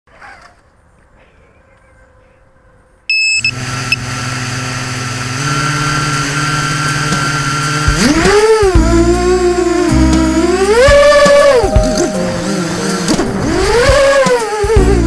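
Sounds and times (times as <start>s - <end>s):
drone motors humming: 3.5s - 15.0s.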